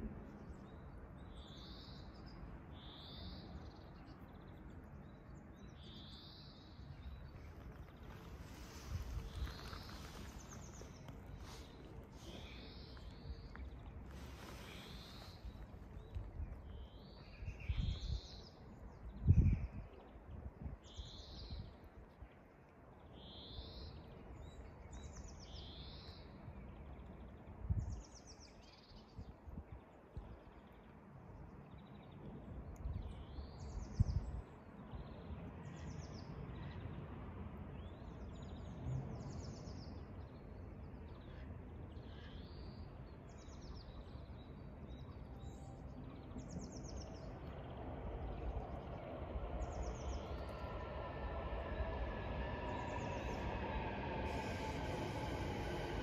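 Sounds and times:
outdoor background noise: 0.0 - 56.0
songbirds chirping: 0.0 - 56.0
brief low rumbles: 46.4 - 56.0.

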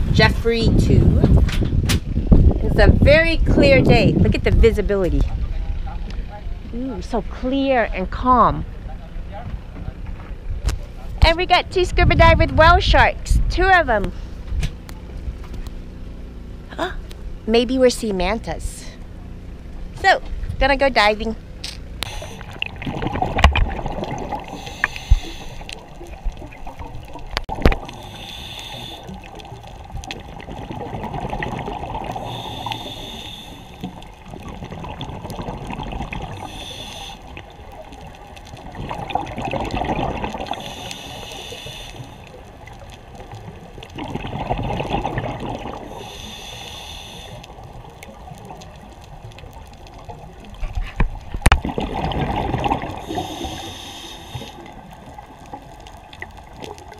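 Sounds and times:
regulator inhalation hiss: 22.0 - 22.6, 24.5 - 25.7, 27.9 - 29.2, 32.2 - 33.9, 36.4 - 37.4, 40.5 - 42.3, 45.9 - 47.5, 53.0 - 54.7
exhaled bubbles rushing: 22.0 - 46.5, 47.4 - 56.9.

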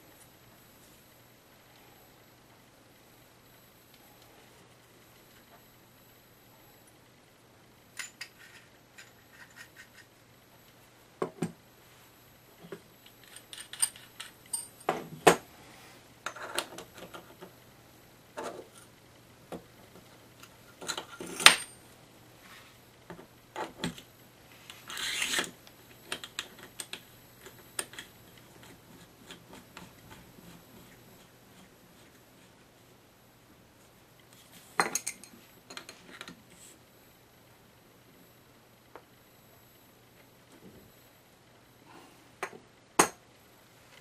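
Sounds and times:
scraping rub: 24.5 - 25.5.

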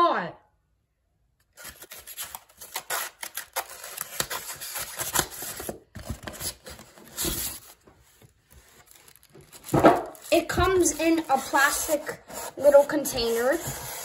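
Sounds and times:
plastic bag crinkling: 1.5 - 12.5
scraping against cardboard box: 8.5 - 14.0.

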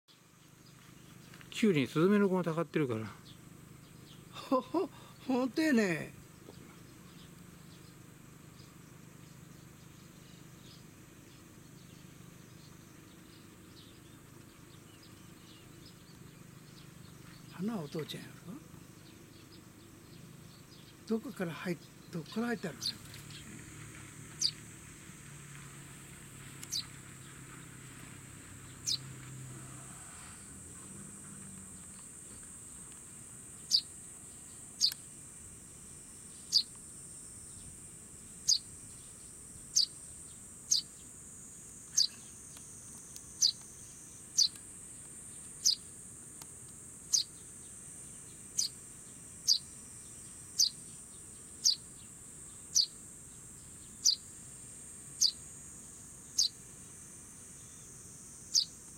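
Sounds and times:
fledgling sparrow chirping: 0.4 - 24.6, 26.6 - 32.9, 33.5 - 35.1, 36.3 - 41.2, 41.8 - 45.9, 47.1 - 54.4, 55.1 - 55.5, 56.2 - 56.7, 58.5 - 58.9
high-pitched insect drone: 28.8 - 46.2, 46.9 - 58.9.

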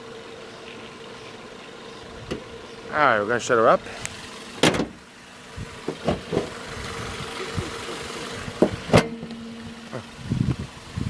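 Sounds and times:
car engine idling: 0.0 - 11.0
car hood slamming shut: 4.6 - 5.0, 5.8 - 6.5, 8.6 - 9.6
hood thumps and knocks: 4.6 - 5.0, 5.8 - 6.5, 8.5 - 9.4.

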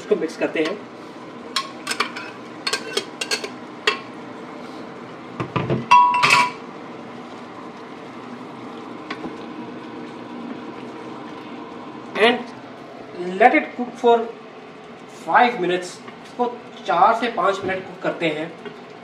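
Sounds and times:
spoon scraping a pan: 1.6 - 4.0.

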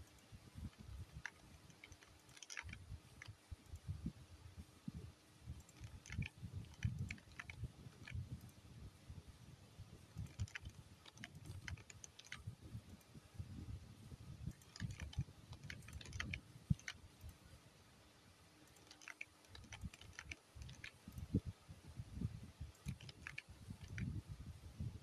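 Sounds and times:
irregular clicking: 0.0 - 3.9, 5.5 - 8.6, 10.0 - 13.2, 14.4 - 17.5, 18.6 - 21.5, 22.6 - 24.2.

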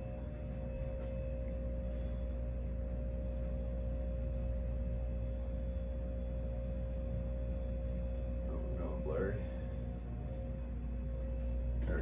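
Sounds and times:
ceiling fan motor humming: 0.0 - 12.0
fan blades rushing: 0.0 - 12.0.

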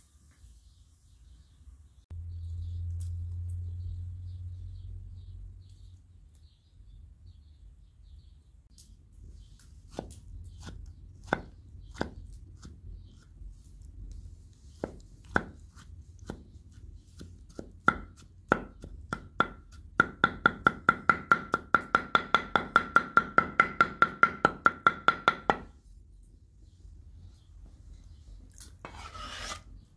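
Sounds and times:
knife chopping on wooden board: 9.9 - 13.3, 14.8 - 25.7.

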